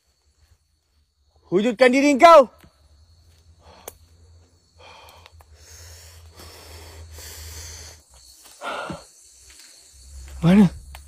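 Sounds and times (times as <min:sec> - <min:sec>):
man breathing heavily: 0:03.3 - 0:09.4
voiced exhale: 0:04.8 - 0:08.0.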